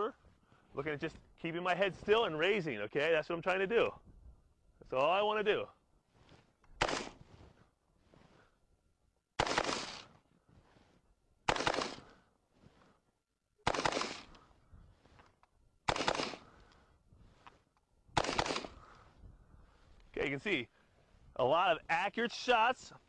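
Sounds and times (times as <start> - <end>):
rifle shots echoing: 6.8 - 7.2, 9.4 - 10.1, 11.5 - 12.2, 13.6 - 14.4, 15.8 - 16.6, 18.2 - 18.9.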